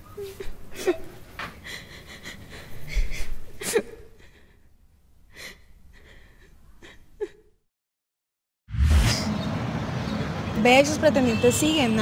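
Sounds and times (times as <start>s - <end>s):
woman sobbing: 0.2s - 4.7s, 5.3s - 7.6s.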